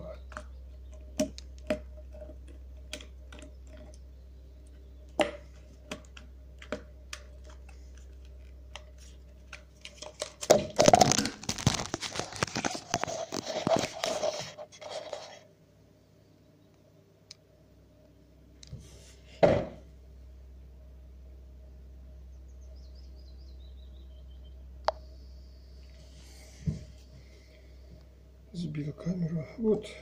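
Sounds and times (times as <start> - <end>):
loud crackling and rustling: 5.4 - 15.4.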